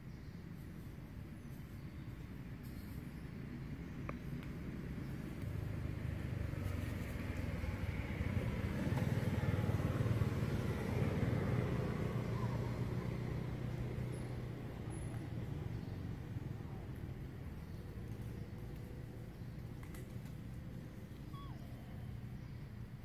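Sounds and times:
vehicle engine passing by: 4.9s - 22.9s.

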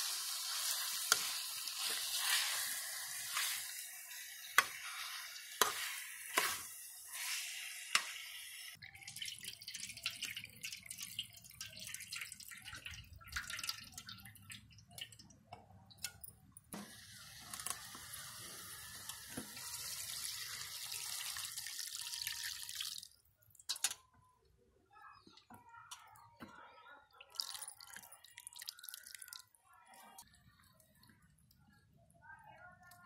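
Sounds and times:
liquid hissing in hot pot: 0.0s - 8.8s
water dripping and splashing: 8.7s - 16.3s, 27.2s - 31.2s.

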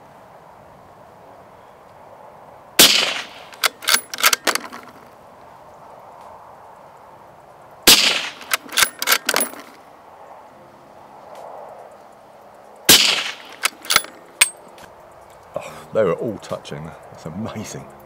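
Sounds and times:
rifle shots: 2.8s - 5.0s, 7.9s - 9.8s, 12.9s - 14.6s
rifle bolt metallic clacks: 2.8s - 5.1s, 7.9s - 9.8s, 12.9s - 15.5s.

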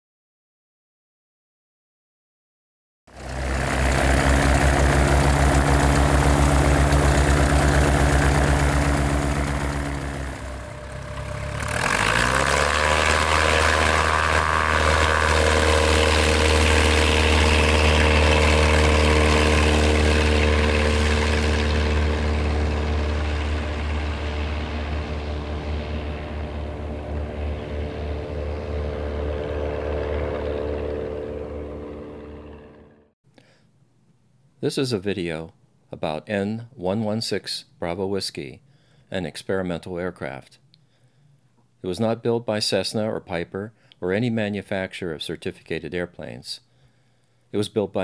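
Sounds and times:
light airplane engine and propeller: 3.1s - 33.2s.

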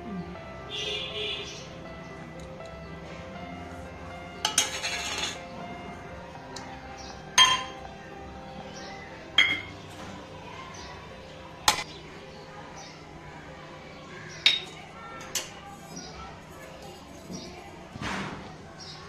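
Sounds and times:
metal bowls clinking: 4.4s - 5.5s, 7.4s - 7.9s, 9.4s - 9.9s, 11.6s - 11.9s, 14.4s - 16.0s.

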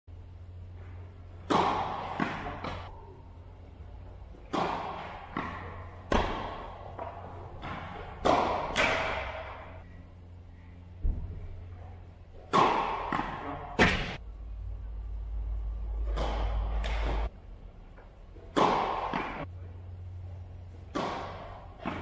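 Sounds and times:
racket striking tennis ball: 1.3s - 2.9s, 4.4s - 9.8s, 12.4s - 14.2s, 16.0s - 17.3s, 18.5s - 19.5s, 20.8s - 22.0s
ball bouncing on court: 1.4s - 2.9s, 4.4s - 9.8s, 20.9s - 22.0s.

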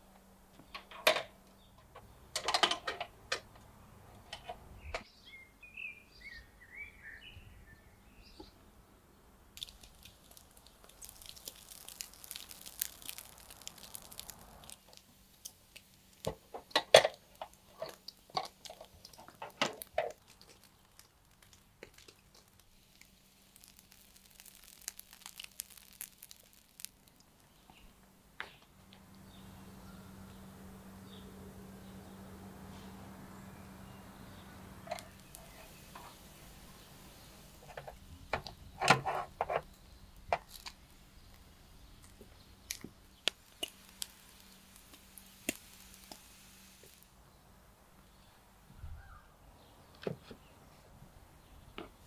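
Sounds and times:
bird chirping: 4.8s - 9.3s, 27.4s - 38.9s
fat sizzling over coals: 9.4s - 48.4s.

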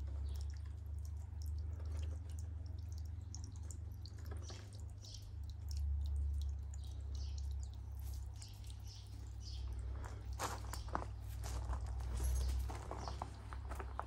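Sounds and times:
footsteps on gravel: 9.9s - 14.0s.

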